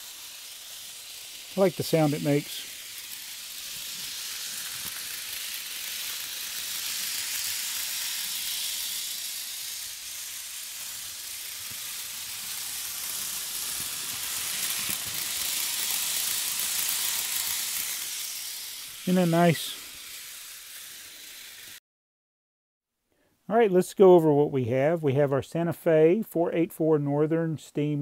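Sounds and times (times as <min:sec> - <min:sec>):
model train whirring on track: 0:00.0 - 0:21.8.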